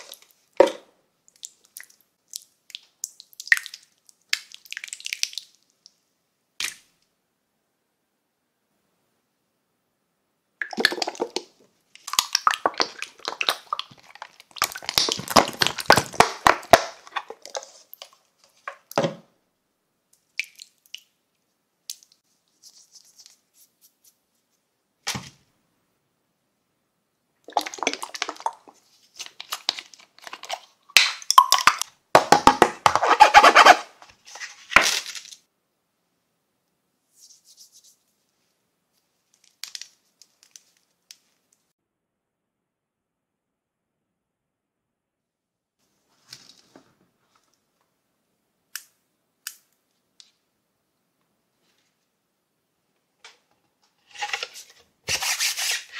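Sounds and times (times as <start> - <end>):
slime squelching: 10.6 - 18.9, 27.5 - 33.8.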